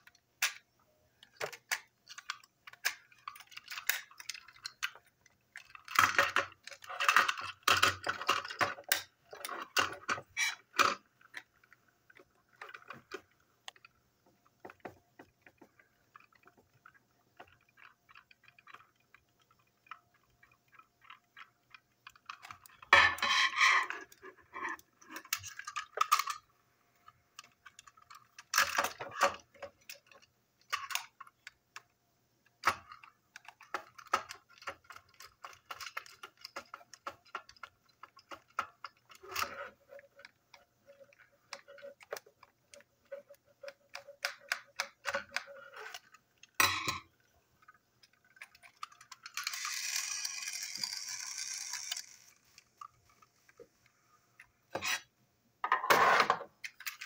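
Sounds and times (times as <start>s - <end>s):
toy parts clattering: 0.0s - 14.0s, 14.6s - 31.9s, 32.5s - 53.6s, 55.7s - 57.0s
toy parts clicking and rattling: 0.0s - 53.6s, 56.6s - 57.0s.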